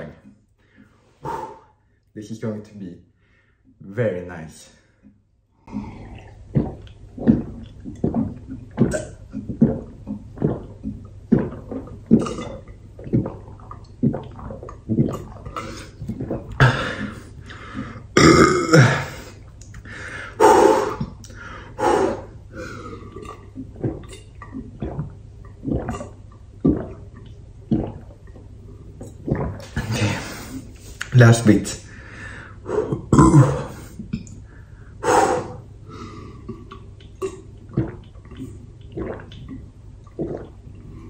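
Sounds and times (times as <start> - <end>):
person gulping a drink: 5.0 - 31.1, 32.7 - 34.6, 35.2 - 41.0
person gasping: 16.6 - 18.0, 31.9 - 34.0
person belching: 18.2 - 19.3, 32.9 - 33.8.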